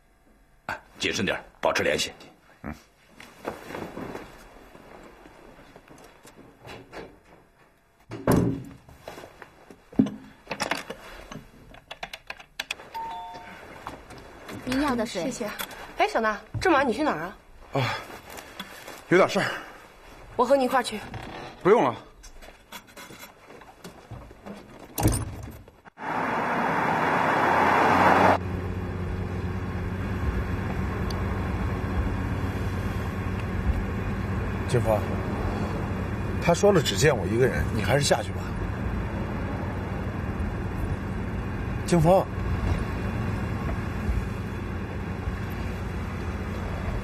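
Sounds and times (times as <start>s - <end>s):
door shutting with heavy thud: 8.1s - 8.8s
vehicle driving by: 26.0s - 36.8s
engine drone inside car cabin: 26.0s - 47.0s.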